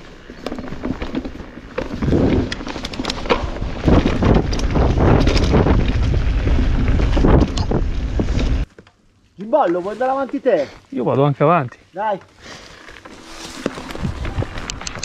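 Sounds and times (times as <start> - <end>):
bike rattling over ground: 0.0 - 10.6, 12.5 - 15.0
wind buffeting microphone: 3.4 - 8.7, 13.8 - 15.0.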